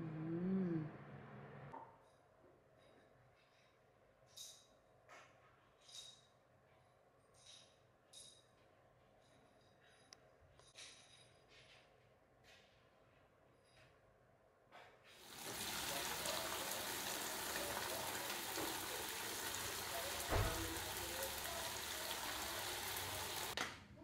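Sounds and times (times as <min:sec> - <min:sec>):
hose water spraying on car: 0:15.2 - 0:23.6
dull thump: 0:20.3 - 0:20.7.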